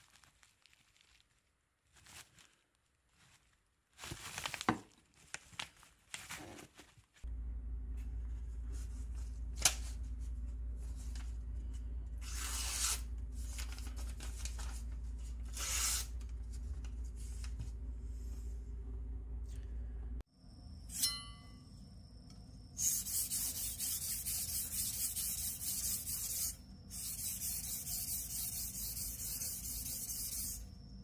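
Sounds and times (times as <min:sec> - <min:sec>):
steady low hum: 0:07.2 - 0:31.0
knife slicing paper: 0:12.2 - 0:14.0, 0:15.4 - 0:16.2.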